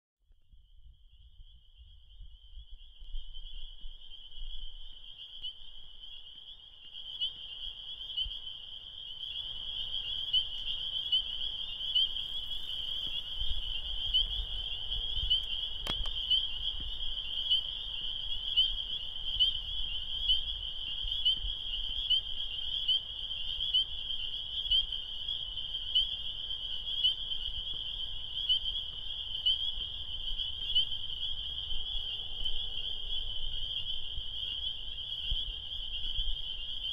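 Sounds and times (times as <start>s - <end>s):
frogs peeping in chorus: 0.5s - 36.9s.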